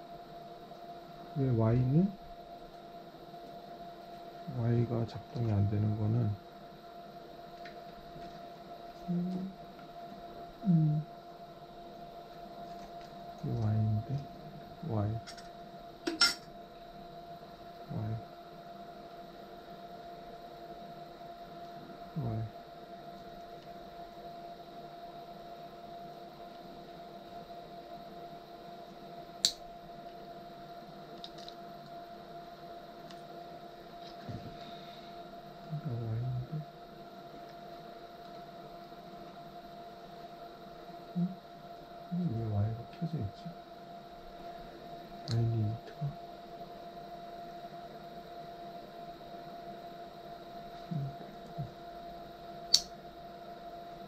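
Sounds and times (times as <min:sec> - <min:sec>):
steady electrical hum: 0:00.0 - 0:54.0
man humming: 0:09.0 - 0:09.6, 0:10.6 - 0:11.1, 0:34.2 - 0:34.7, 0:35.6 - 0:36.7, 0:41.1 - 0:41.4, 0:42.1 - 0:43.5, 0:45.3 - 0:46.2, 0:50.8 - 0:51.9
sharp click: 0:52.7 - 0:53.0.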